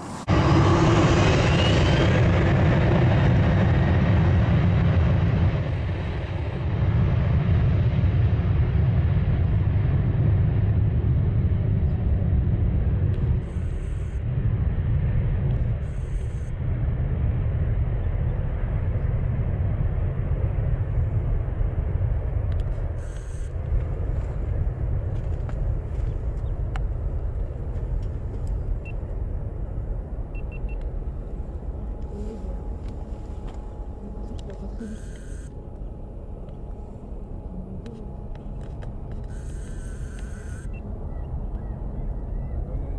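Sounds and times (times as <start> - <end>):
jet engines rumbling at takeoff: 0.0 - 42.9.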